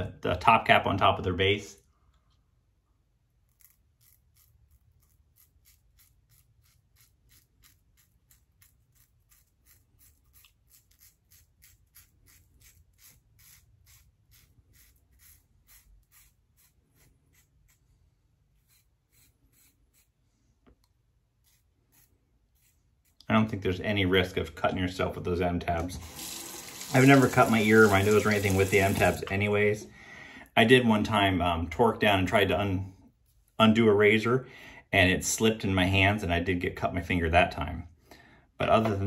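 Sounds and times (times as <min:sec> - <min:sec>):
razor scraping stubble: 0:03.4 - 0:20.3, 0:21.3 - 0:24.6, 0:25.7 - 0:29.9.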